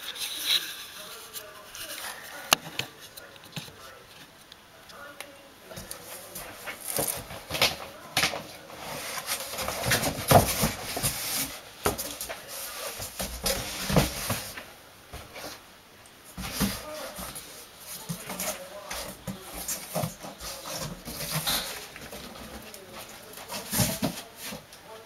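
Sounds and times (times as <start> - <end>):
cardboard flaps scraping and rustling: 6.0 - 15.6, 16.4 - 24.7.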